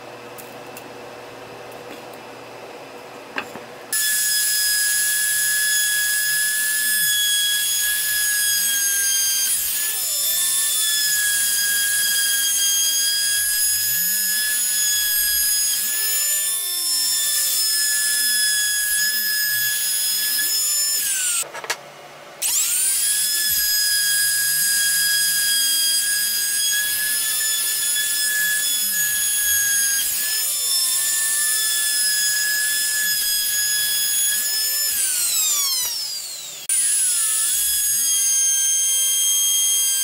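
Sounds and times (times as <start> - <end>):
router whining cutting wood: 3.9 - 21.5, 22.4 - 40.0.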